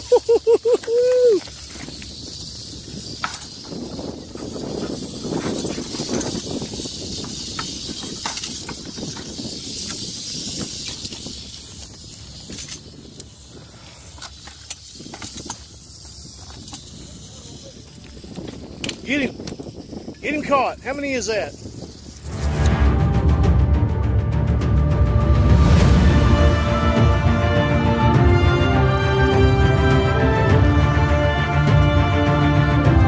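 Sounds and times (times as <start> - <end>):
rattlesnake rattling: 0.0 - 23.0
stones clicking: 0.2 - 4.6.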